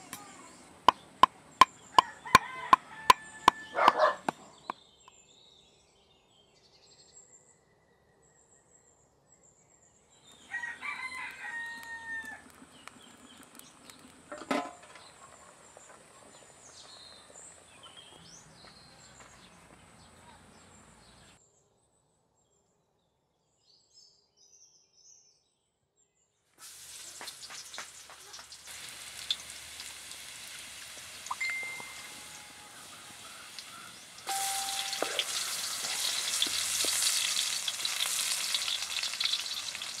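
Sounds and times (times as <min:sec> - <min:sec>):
oil sizzling in a wok: 0:01.2 - 0:03.7, 0:26.6 - 0:40.0
rooster crowing: 0:01.9 - 0:04.3, 0:10.4 - 0:12.5, 0:31.5 - 0:36.6.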